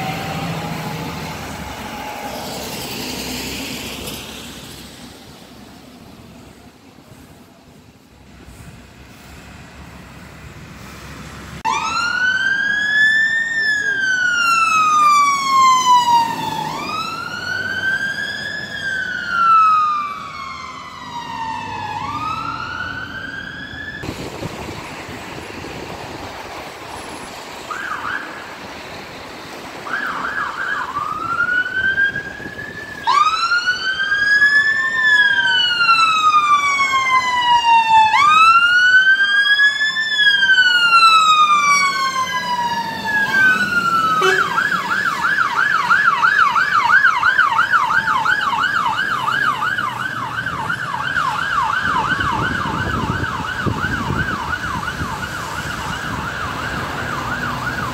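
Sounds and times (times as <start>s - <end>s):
fire engine sirens wailing: 0.0s - 57.9s
siren fast yelp: 11.7s - 24.0s, 29.9s - 57.9s.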